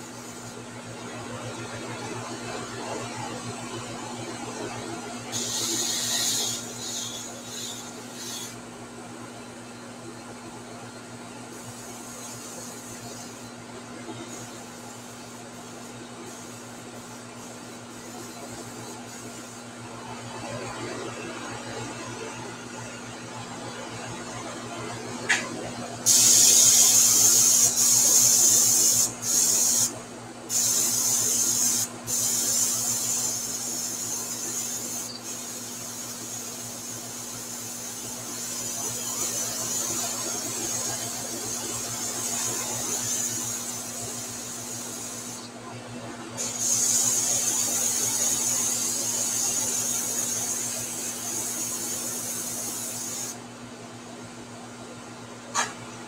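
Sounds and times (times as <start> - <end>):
airbrush hissing: 5.3 - 8.6, 11.5 - 13.5, 26.0 - 45.5, 46.4 - 53.4.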